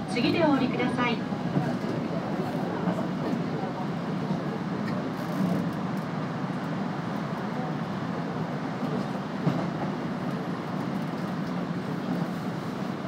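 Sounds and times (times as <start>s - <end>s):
train running rumble: 0.0s - 13.0s.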